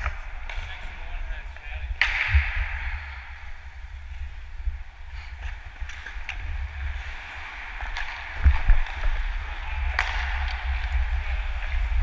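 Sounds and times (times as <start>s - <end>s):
skates gliding on ice: 0.0s - 12.0s
wind rumble on microphone: 8.3s - 12.0s.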